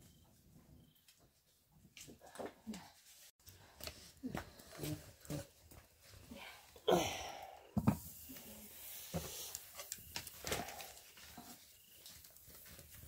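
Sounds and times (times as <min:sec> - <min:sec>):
rustling: 0:08.0 - 0:13.0.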